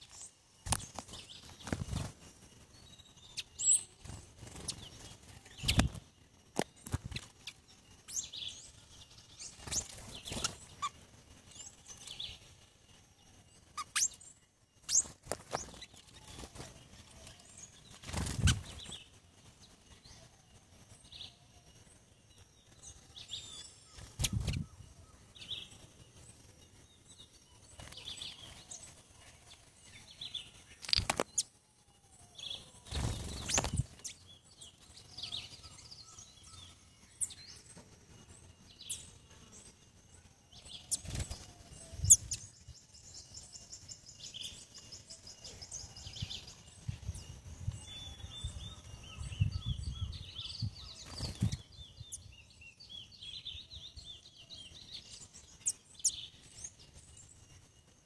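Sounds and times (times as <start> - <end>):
wing flutters and bumps: 0.0 - 8.2, 9.0 - 14.2, 14.8 - 20.0, 22.6 - 26.4, 32.6 - 35.5, 37.2 - 43.6, 50.5 - 52.1
songbirds chirping: 0.0 - 58.0.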